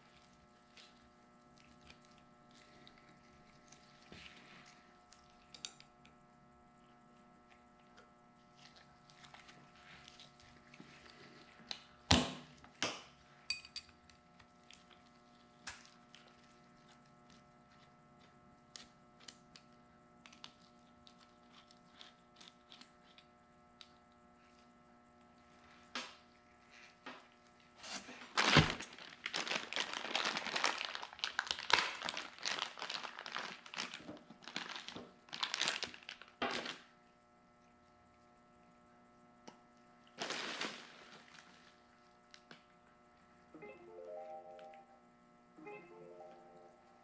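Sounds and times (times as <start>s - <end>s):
plastic bag crinkling: 28.2s - 36.9s, 40.2s - 42.0s.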